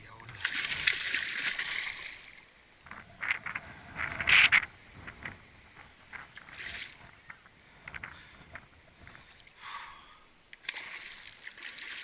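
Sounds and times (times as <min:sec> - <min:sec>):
fish splashing in water: 0:00.4 - 0:02.4, 0:10.6 - 0:12.0.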